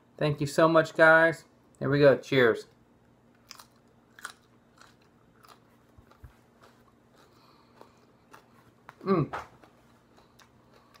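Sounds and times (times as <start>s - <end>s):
chili pepper crunching: 3.2s - 11.0s.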